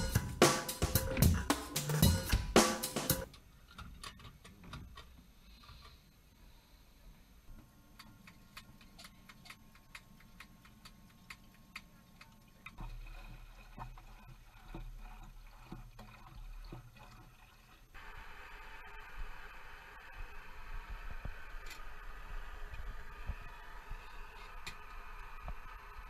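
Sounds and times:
steady hiss: 0.0s - 3.3s, 17.9s - 26.0s.

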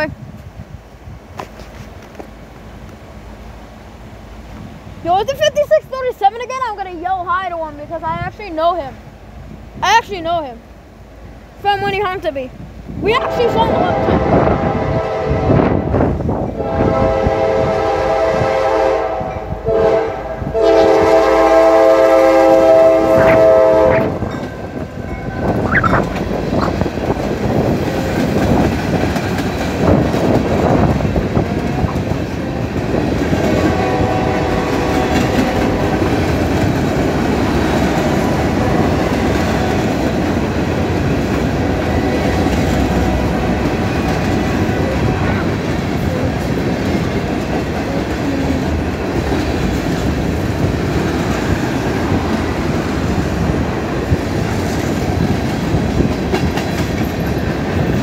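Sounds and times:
train wheels rumbling on rails: 0.0s - 58.0s
locomotive air horn blasts: 13.1s - 15.9s, 16.6s - 25.5s, 33.5s - 35.8s.

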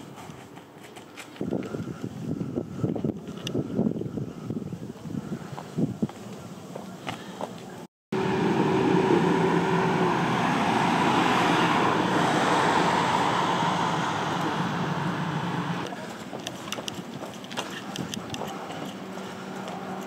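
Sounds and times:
engine rushing with low hum: 8.1s - 15.9s.

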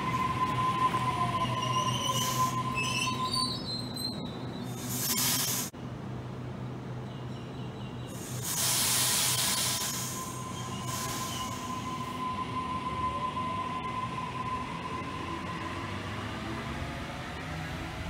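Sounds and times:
steady high squeal: 0.0s - 5.7s, 8.2s - 17.4s
loud burst of hiss: 4.8s - 5.7s, 8.1s - 12.0s.

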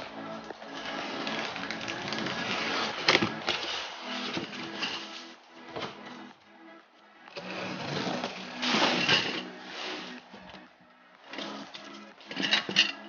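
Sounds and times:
items shifting inside box: 0.5s - 6.3s, 7.4s - 10.6s.

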